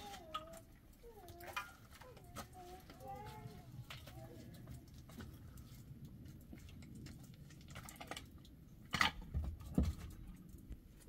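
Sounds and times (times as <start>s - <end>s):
concrete blocks clicking and scraping: 0.0s - 11.0s.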